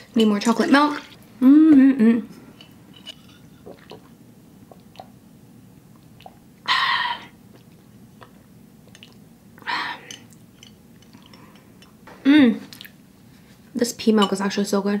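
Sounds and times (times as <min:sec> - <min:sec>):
mouth and swallowing clicks: 0:03.7 - 0:05.2, 0:05.9 - 0:06.4, 0:07.5 - 0:09.3.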